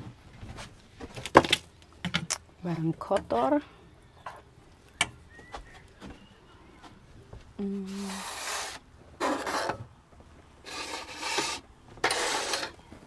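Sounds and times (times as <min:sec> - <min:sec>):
tableware sliding on table: 0:07.9 - 0:09.8, 0:10.6 - 0:12.8.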